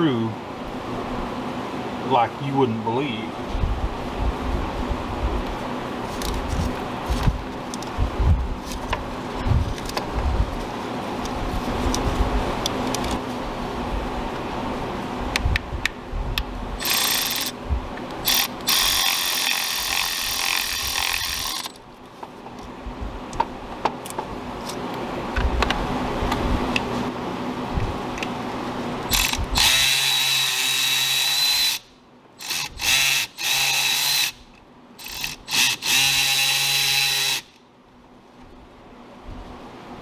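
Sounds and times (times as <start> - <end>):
cordless ratchet motor whining: 16.8 - 17.6, 18.2 - 21.8, 29.1 - 37.6
tool clicks and handling: 18.3 - 22.7.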